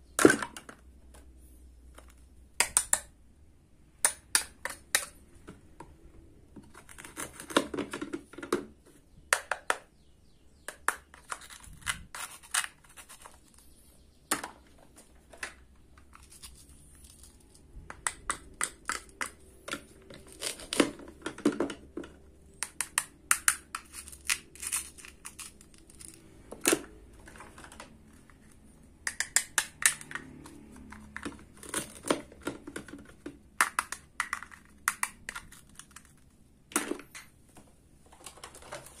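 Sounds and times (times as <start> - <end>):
wooden toy knife tapping plastic: 4.0 - 5.8, 29.0 - 30.6.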